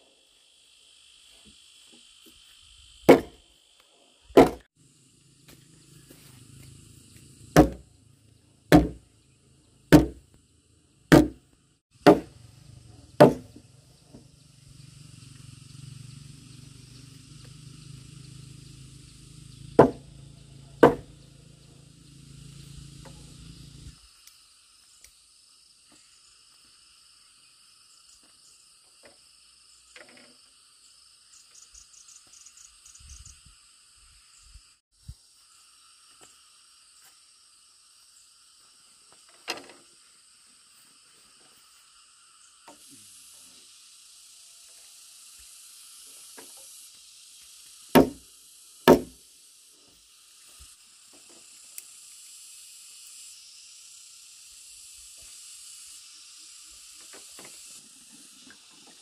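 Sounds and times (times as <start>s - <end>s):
insects chirring: 0.0s - 59.0s
heavy tool striking wood: 3.1s - 3.4s, 4.4s - 4.7s, 7.6s - 7.8s, 8.7s - 9.0s, 9.9s - 10.2s, 11.1s - 11.4s, 12.0s - 12.4s, 13.2s - 13.6s, 19.8s - 20.1s, 20.8s - 21.1s, 48.0s - 48.2s, 48.9s - 49.2s.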